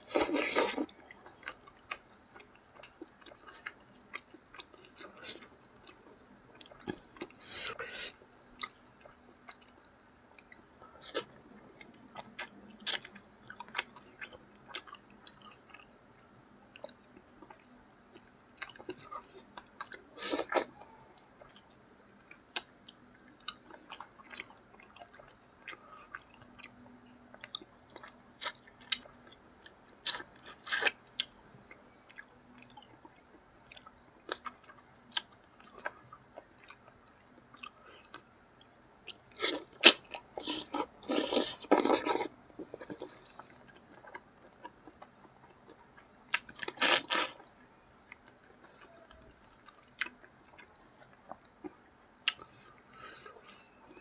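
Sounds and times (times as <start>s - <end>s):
chewing and biting food: 11.1s - 53.4s.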